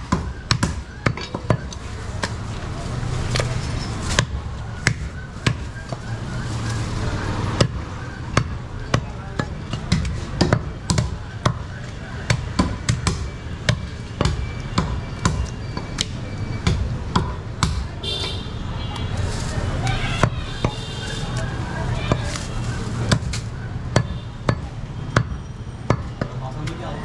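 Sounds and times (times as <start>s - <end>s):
knife chopping meat and bone: 7.5s - 18.0s.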